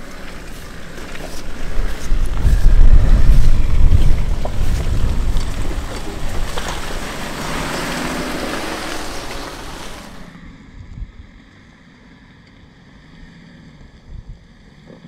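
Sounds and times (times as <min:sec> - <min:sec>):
vehicle crawling over rock: 0:00.0 - 0:10.4
wind on microphone: 0:01.3 - 0:11.4.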